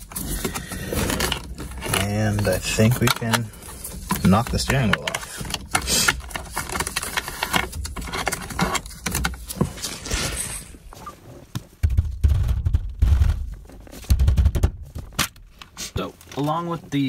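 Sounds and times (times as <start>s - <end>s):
dull heavy thumps: 11.6s - 15.5s.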